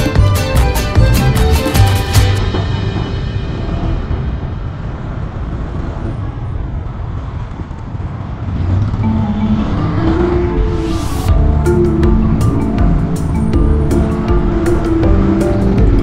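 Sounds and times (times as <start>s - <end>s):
background music: 0.0s - 5.5s, 9.0s - 16.0s
traffic rumble: 0.0s - 16.0s.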